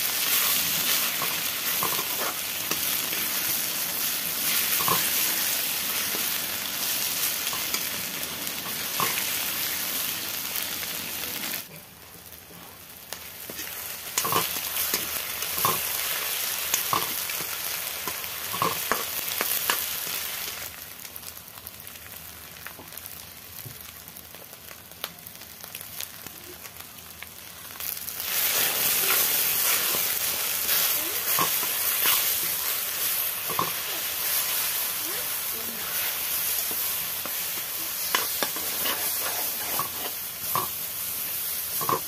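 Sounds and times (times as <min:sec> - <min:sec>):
food sizzling in a pan: 0:00.0 - 0:42.0
spoon scraping and knocking pan: 0:00.2 - 0:03.2, 0:04.5 - 0:05.3, 0:16.7 - 0:19.8, 0:33.4 - 0:33.8, 0:36.6 - 0:40.8, 0:41.7 - 0:42.0.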